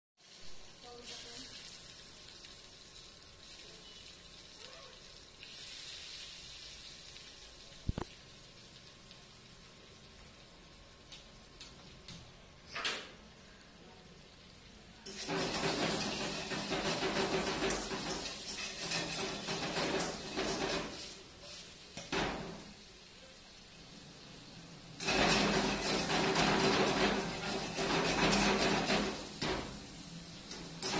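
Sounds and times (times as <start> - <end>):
vegetables sizzling in a wok: 0.2 - 30.9
metal spatula scraping a wok: 15.1 - 22.4, 25.0 - 29.8, 30.5 - 30.9.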